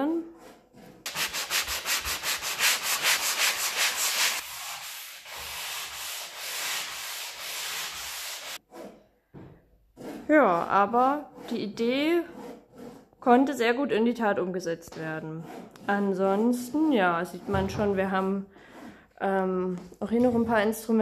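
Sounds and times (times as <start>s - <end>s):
sanding block rubbing wood: 0.7s - 8.7s.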